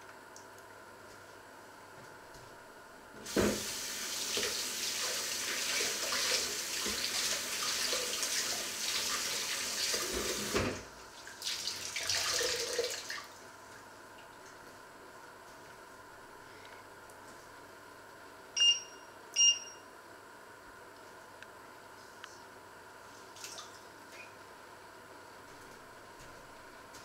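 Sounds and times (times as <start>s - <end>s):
rinsing with a cloth: 3.3s - 10.6s.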